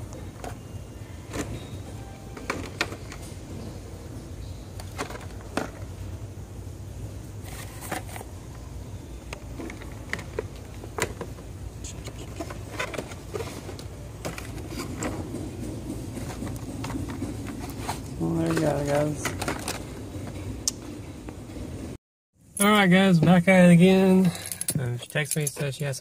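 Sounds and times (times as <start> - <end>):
packages rustling and clicking: 0.0 - 3.8, 4.7 - 6.1, 7.4 - 11.5, 12.1 - 20.6
store background hum: 0.0 - 26.0.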